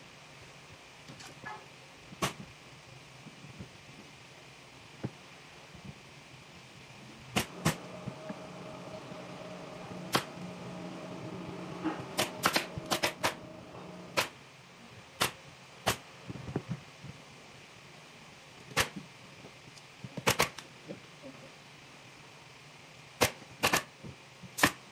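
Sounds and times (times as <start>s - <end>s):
pneumatic staple gun firing: 7.4s - 7.8s, 10.1s - 10.3s, 12.2s - 13.4s, 14.1s - 14.4s, 20.2s - 20.6s, 23.2s - 23.9s, 24.6s - 24.8s.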